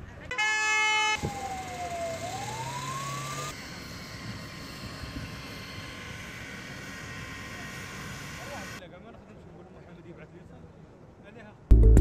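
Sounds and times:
emergency vehicle siren wailing: 0:00.3 - 0:08.8.

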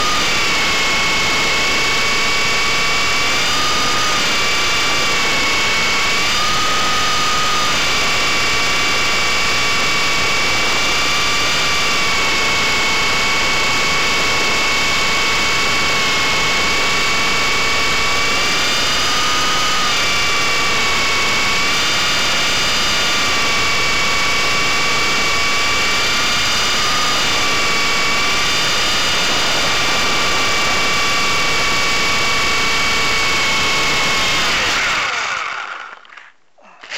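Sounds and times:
electric motor and gear whine: 0:00.0 - 0:36.9
rotor rushing: 0:17.2 - 0:36.9.

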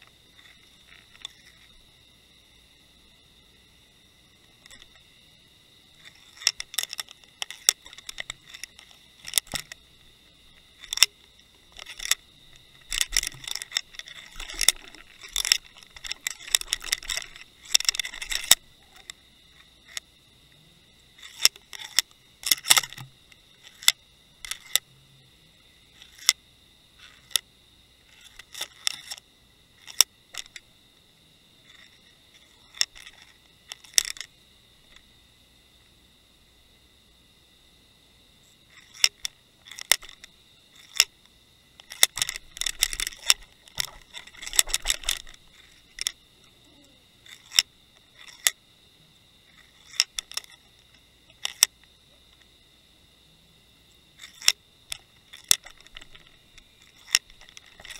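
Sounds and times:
sharp clicks and knocks: 0:06.0 - 0:09.8, 0:10.5 - 0:20.1, 0:21.2 - 0:24.9, 0:29.8 - 0:30.7, 0:31.7 - 0:34.3, 0:38.7 - 0:41.1, 0:41.8 - 0:46.3, 0:47.2 - 0:48.6, 0:49.5 - 0:52.5, 0:54.2 - 0:57.9.

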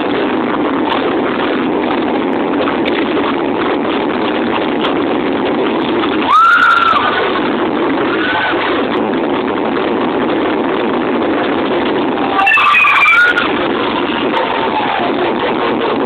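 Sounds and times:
distorted dance music: 0:00.0 - 0:16.0
whistle-like sliding tone: 0:12.3 - 0:13.5.

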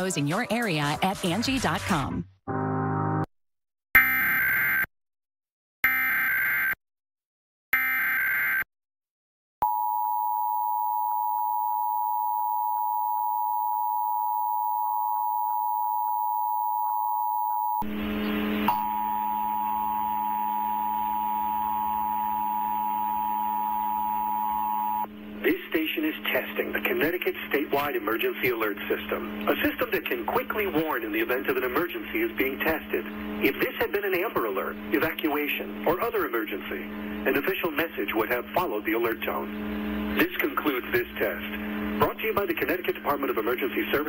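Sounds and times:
screeching data tones: 0:04.0 - 0:04.9, 0:07.8 - 0:08.7, 0:17.0 - 0:44.0
faint program sound: 0:09.6 - 0:44.0.

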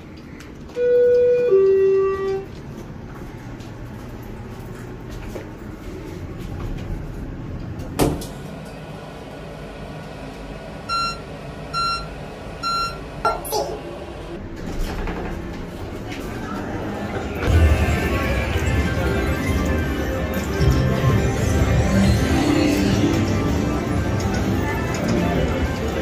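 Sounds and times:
elevator low hum: 0:00.0 - 0:26.0
elevator chime descending tones: 0:00.7 - 0:02.5, 0:10.8 - 0:13.1, 0:17.4 - 0:26.0.

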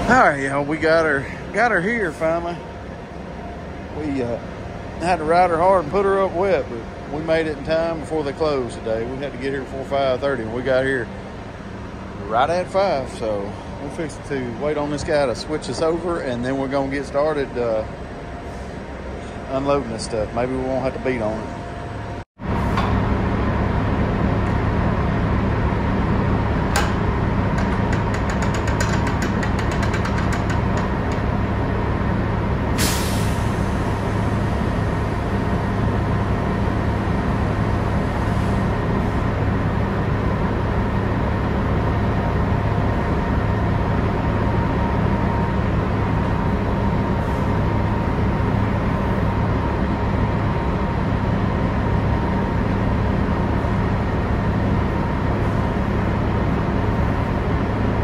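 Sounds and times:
loud steady mechanical hum: 0:00.0 - 0:58.0.

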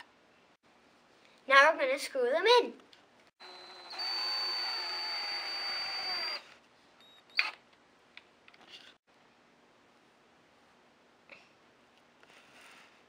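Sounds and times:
cordless drill driving screw: 0:03.4 - 0:06.5.

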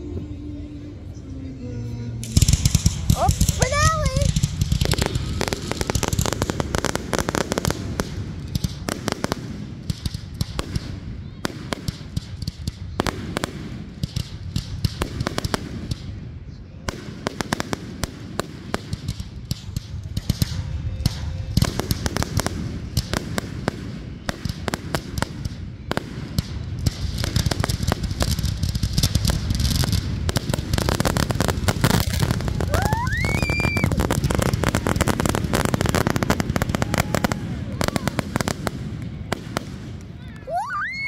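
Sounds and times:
continuous rumble: 0:00.0 - 0:40.6
fireworks bangs and crackles: 0:01.7 - 0:41.0
firework whistle: 0:02.2 - 0:06.6, 0:32.0 - 0:34.5, 0:40.5 - 0:41.0.

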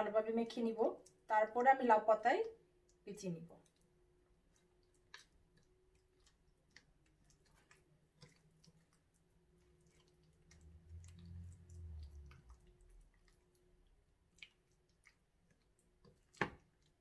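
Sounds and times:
soft squishing of hands: 0:00.3 - 0:17.0.

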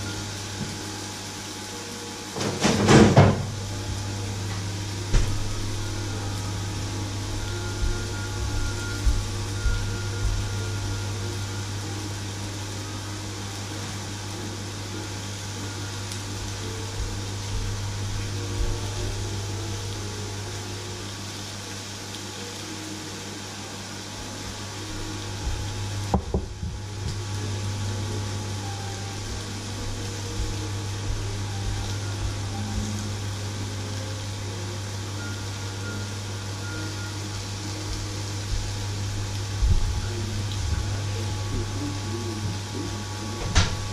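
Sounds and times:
low hum: 0:00.0 - 0:43.9
meat sizzling in a pan: 0:00.0 - 0:43.9.

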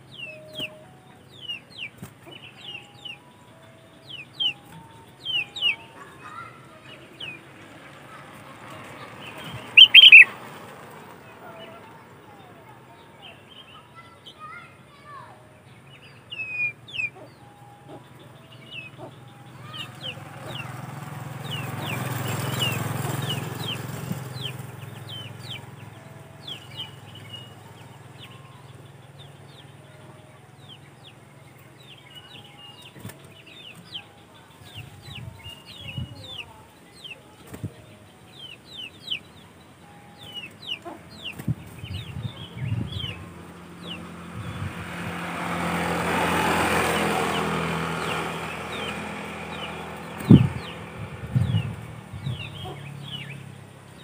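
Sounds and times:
bird calling sharp notes: 0:09.4 - 0:10.4.

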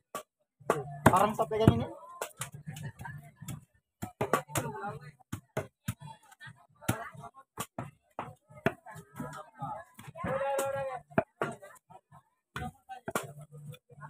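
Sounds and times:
faint voices murmuring: 0:00.7 - 0:14.0.

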